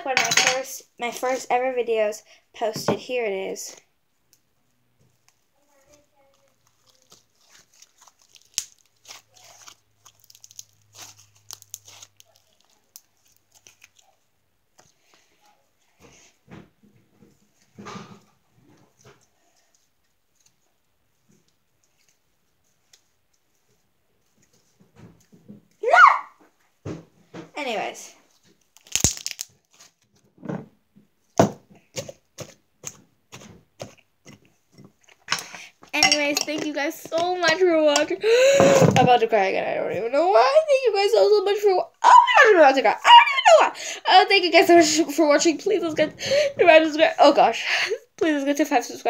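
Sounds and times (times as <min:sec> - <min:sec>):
slime popping and crackling: 0:06.2 - 0:14.2, 0:28.6 - 0:30.0.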